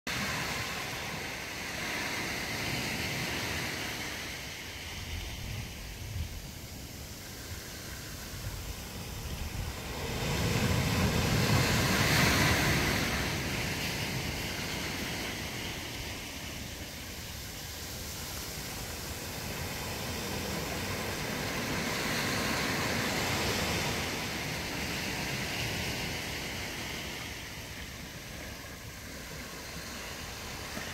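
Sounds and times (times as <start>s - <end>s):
sea water washing over sand: 0.1s - 30.9s.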